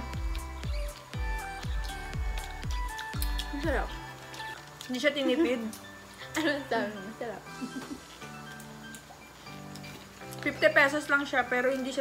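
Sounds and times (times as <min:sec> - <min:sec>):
electronic music: 0:00.0 - 0:04.4.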